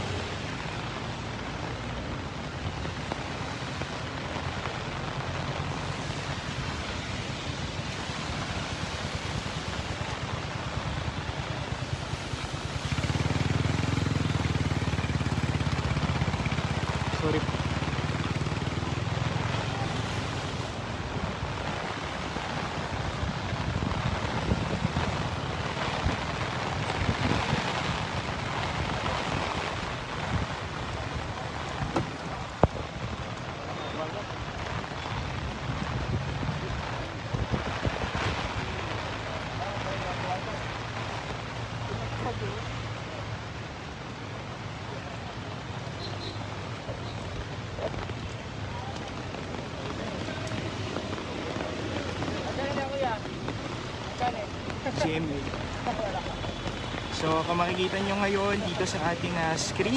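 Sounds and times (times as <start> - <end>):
wind rumble on microphone: 0.0 - 45.8, 46.5 - 57.2
rain: 0.0 - 59.9
river floodwaters rushing: 0.0 - 59.9
wind on microphone: 20.9 - 33.6, 34.3 - 39.1.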